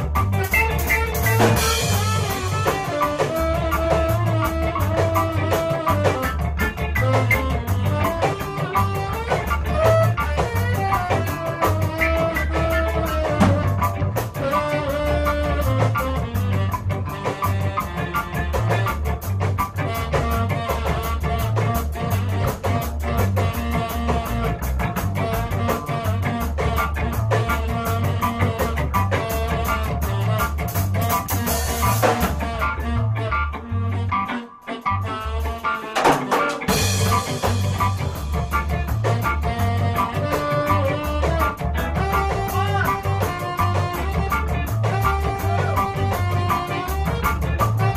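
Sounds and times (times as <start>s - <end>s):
bass line: 0.0s - 36.0s, 36.6s - 47.9s
drum kit beat: 0.0s - 47.9s
guitar: 0.0s - 47.9s
ska band playing: 0.0s - 47.9s.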